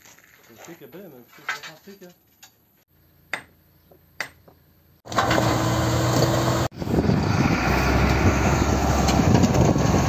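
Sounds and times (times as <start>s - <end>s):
diesel engine running: 5.1s - 10.0s.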